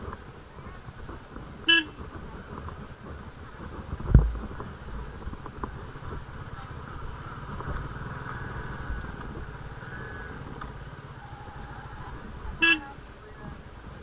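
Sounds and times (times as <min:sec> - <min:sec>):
motorcycle engine running: 0:00.0 - 0:14.0
horn toot: 0:01.7 - 0:02.1, 0:11.2 - 0:13.1.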